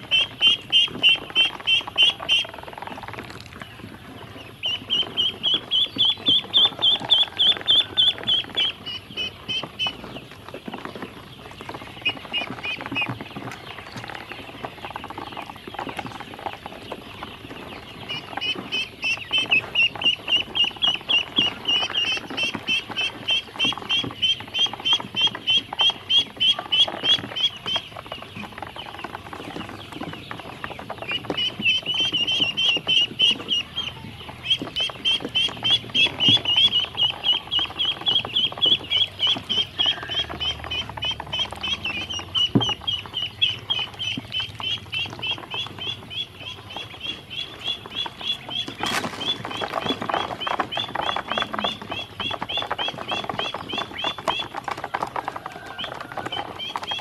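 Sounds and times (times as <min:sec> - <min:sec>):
ducklings peeping: 0:00.0 - 0:57.0
bills tapping in plastic basin: 0:47.8 - 0:57.0.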